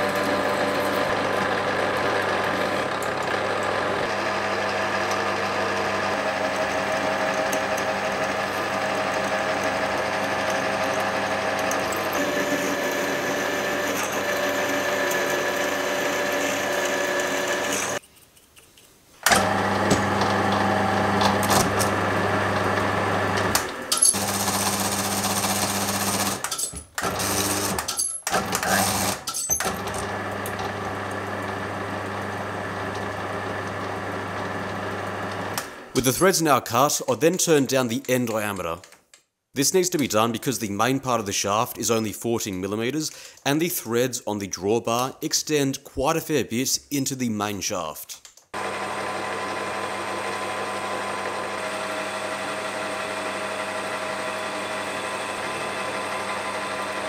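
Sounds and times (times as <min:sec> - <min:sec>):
metal lathe cutting steel: 0:00.0 - 0:18.0, 0:48.6 - 0:57.0.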